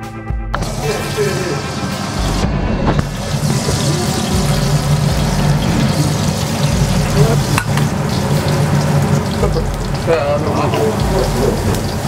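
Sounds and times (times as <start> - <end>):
food sizzling in oil: 0.6 - 2.4, 3.0 - 12.0
low hum: 0.6 - 10.2.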